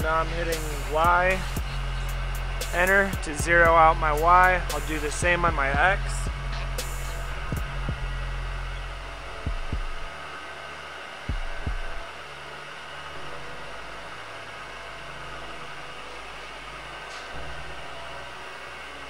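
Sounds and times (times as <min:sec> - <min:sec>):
milling machine humming: 0:00.0 - 0:19.0
short low thumps: 0:05.2 - 0:08.3, 0:09.3 - 0:10.1, 0:11.3 - 0:12.0.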